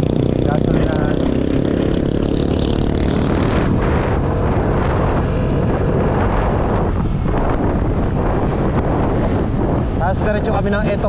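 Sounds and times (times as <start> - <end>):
scooter engine running: 0.0 - 10.0
wind on microphone: 0.0 - 11.0.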